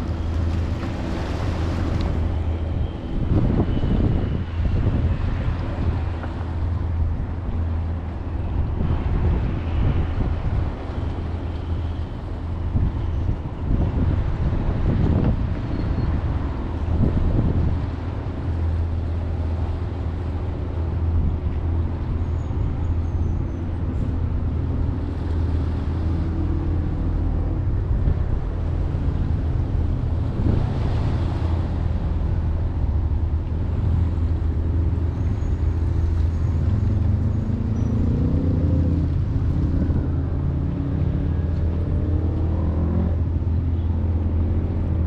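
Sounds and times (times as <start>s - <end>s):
low engine rumble: 0.0s - 45.0s.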